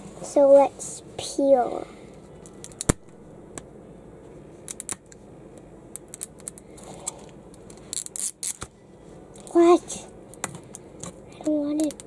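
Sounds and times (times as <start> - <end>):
fingernail picking plastic wrapper: 11.8 - 12.0.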